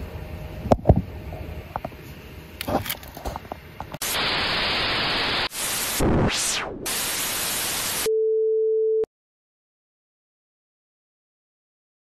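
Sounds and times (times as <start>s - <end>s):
white noise static hiss: 0.0s - 8.1s.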